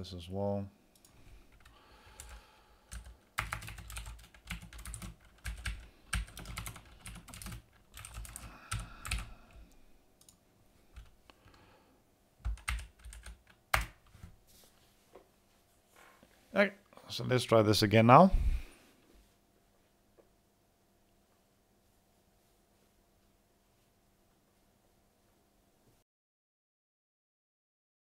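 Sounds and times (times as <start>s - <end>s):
typing on computer keyboard: 1.0s - 9.3s, 12.4s - 14.2s.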